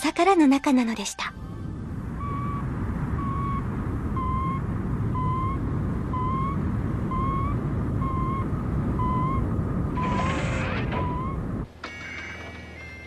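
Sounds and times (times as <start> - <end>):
low rumble: 0.9 - 11.7
electronic beeps: 2.1 - 12.2.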